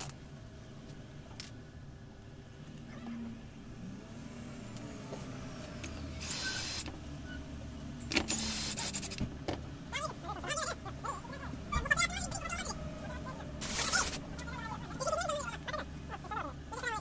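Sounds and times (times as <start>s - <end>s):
cordless drill whirring: 6.2s - 6.9s, 8.3s - 9.2s.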